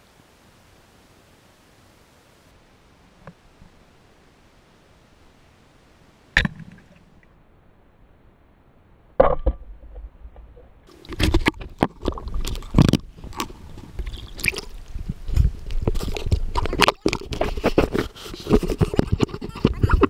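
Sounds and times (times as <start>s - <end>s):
water sloshing and gurgling: 10.5s - 20.0s
water splashes: 10.9s - 18.0s
knocks and clatters of handling: 15.3s - 20.0s.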